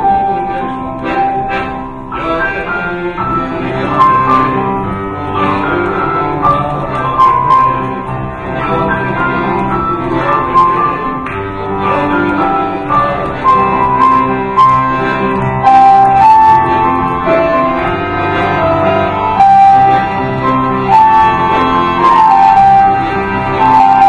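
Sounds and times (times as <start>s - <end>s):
accordion: 0.0s - 24.0s
piano: 0.0s - 24.0s.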